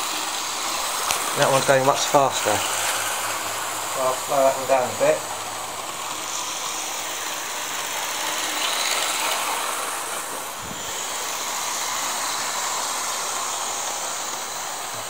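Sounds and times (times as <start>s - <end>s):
model train motors whirring: 0.0s - 15.0s
wheels rattling on track: 0.0s - 15.0s.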